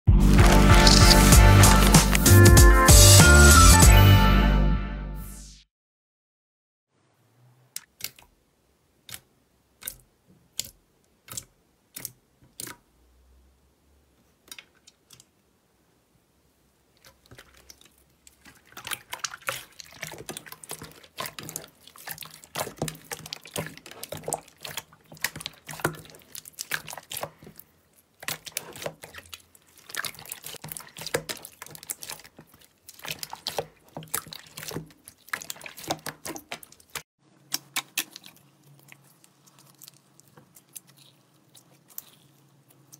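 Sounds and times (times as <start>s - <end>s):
slime squelching and popping: 0.2s - 2.5s, 9.0s - 12.9s, 17.0s - 42.9s.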